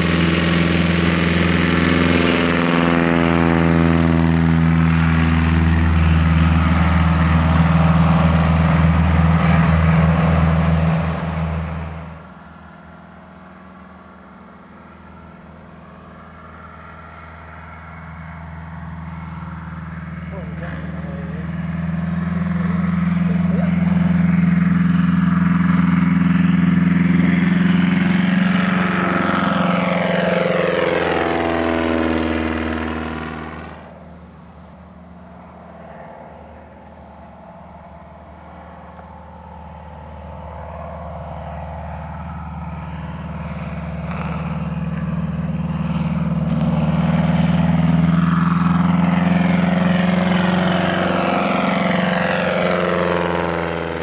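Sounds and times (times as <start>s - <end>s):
light aircraft engine drone: 0.0s - 54.0s.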